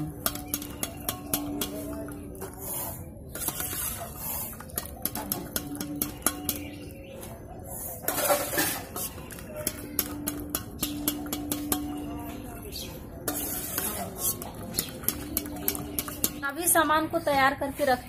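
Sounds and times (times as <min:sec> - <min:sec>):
steel ladle clinking against pot: 0:00.1 - 0:02.2, 0:03.4 - 0:07.0, 0:08.0 - 0:16.5.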